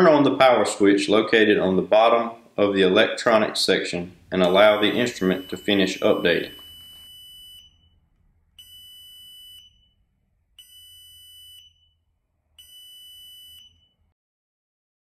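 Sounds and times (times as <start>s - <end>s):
long high beeps: 4.4s - 8.0s, 8.6s - 10.0s, 10.6s - 12.0s, 12.6s - 14.1s.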